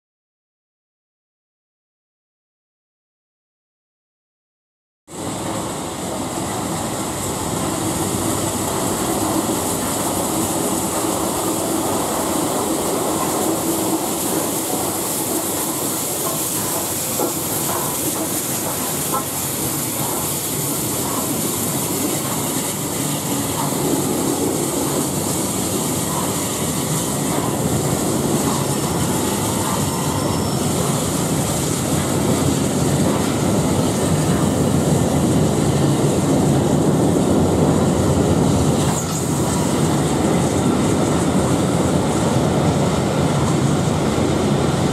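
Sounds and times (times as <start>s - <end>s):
steam train passing: 5.1s - 44.9s
wheels clacking over rail joints: 6.3s - 35.0s
faint brake squeals: 29.2s - 31.0s.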